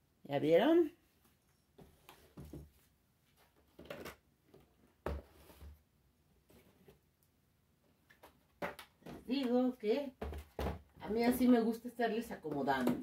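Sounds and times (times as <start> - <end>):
boxes rustling and knocking: 10.2 - 11.3.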